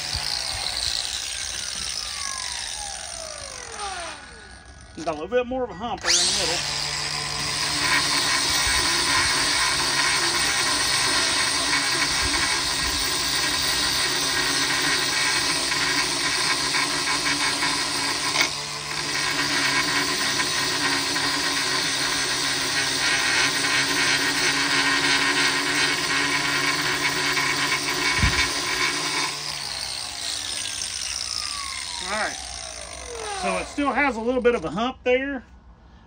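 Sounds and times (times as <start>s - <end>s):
angle grinder grinding metal: 0.0s - 34.8s.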